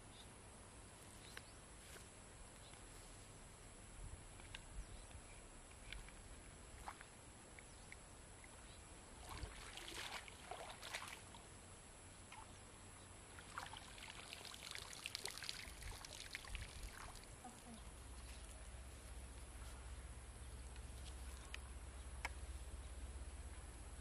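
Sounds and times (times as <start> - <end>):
water sloshing and dripping: 9.2 - 11.4, 13.3 - 17.5.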